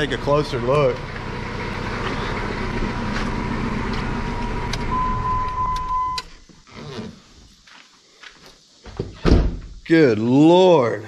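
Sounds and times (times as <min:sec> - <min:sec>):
car engine idling: 0:00.0 - 0:06.1
transmission whine: 0:01.9 - 0:06.5.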